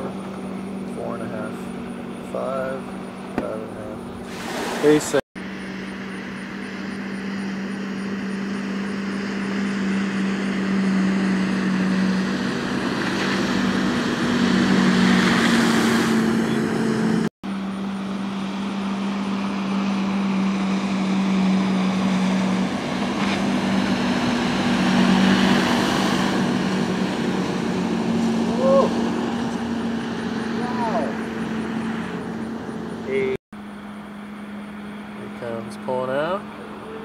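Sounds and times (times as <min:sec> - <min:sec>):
boat engine humming: 0:00.0 - 0:37.0
water spray hissing: 0:04.2 - 0:05.2.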